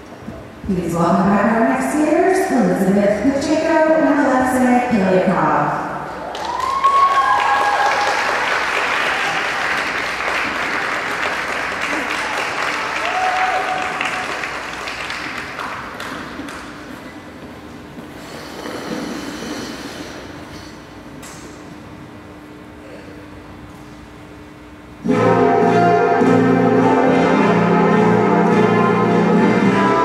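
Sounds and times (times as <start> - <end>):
crowd shouting and cheering: 6.1 - 8.4, 11.8 - 14.4
audience applauding: 6.1 - 16.7.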